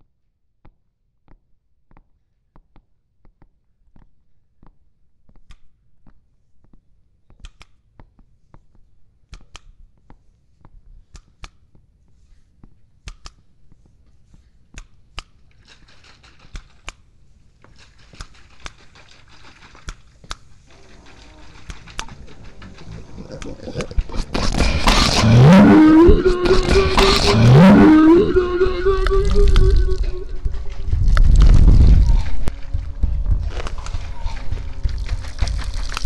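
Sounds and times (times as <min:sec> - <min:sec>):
rushing noise: 0:23.8 - 0:36.0.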